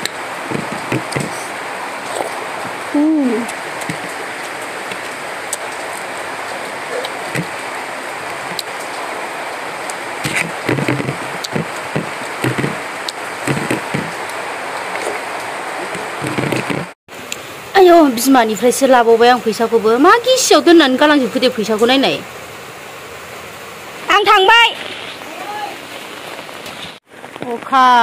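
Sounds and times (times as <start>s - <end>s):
steady background hiss: 0.0s - 28.0s
chewing: 0.5s - 2.4s, 9.9s - 15.2s
fingers working rice on a plate: 10.2s - 12.8s, 13.5s - 14.2s.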